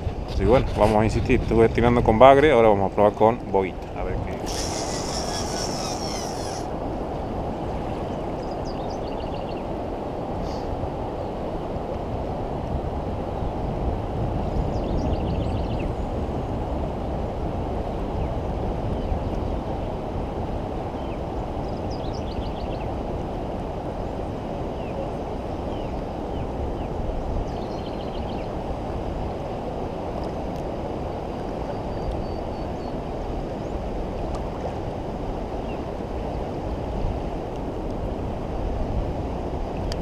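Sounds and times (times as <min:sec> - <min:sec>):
wind: 0:00.0 - 0:40.0
faint bird chirps: 0:04.4 - 0:06.7
fast-flowing river water: 0:04.4 - 0:07.7.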